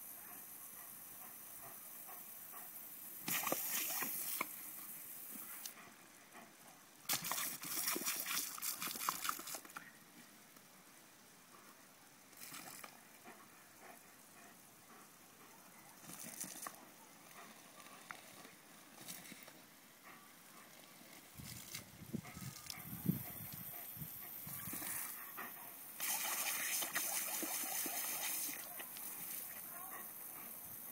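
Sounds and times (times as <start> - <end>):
water sprinkler hissing and splashing: 1.5 - 5.8, 7.1 - 9.9, 12.2 - 13.2, 15.9 - 19.9, 22.5 - 30.9
water spattering: 7.1 - 9.7, 26.0 - 29.5.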